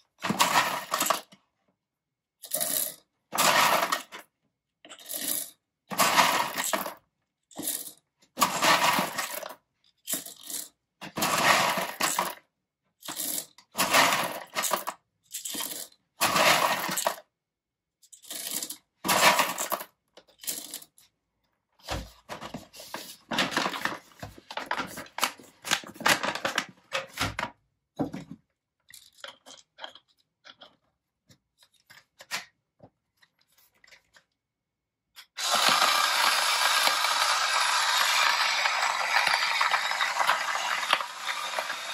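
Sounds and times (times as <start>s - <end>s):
coffee beans rattling: 35.4s - 41.9s.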